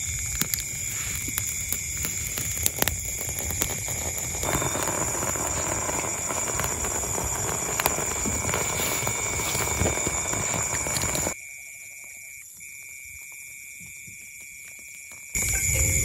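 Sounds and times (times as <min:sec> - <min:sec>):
loud rough crackly noise: 0:00.0 - 0:11.4
crickets trilling: 0:00.0 - 0:16.0.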